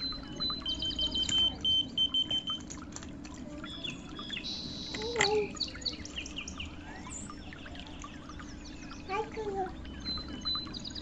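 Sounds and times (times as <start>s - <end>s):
key finder beeping: 0.0s - 2.6s
birds chirping: 0.0s - 11.0s.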